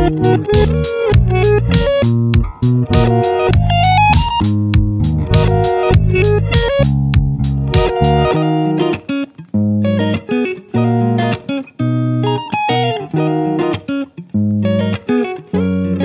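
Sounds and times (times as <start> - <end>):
bass line: 0.0 - 8.4
plucked notes: 0.0 - 16.0.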